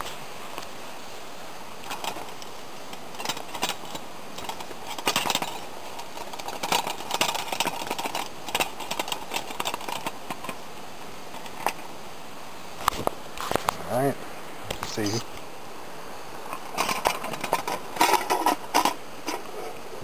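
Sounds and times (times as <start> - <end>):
background hiss: 0.0 - 20.0
camp cook set clicking: 1.8 - 10.6, 16.5 - 19.5.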